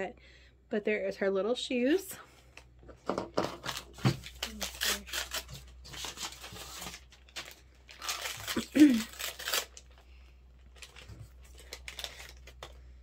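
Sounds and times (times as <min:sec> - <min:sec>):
plastic bag crinkling and tearing: 0:03.5 - 0:12.8.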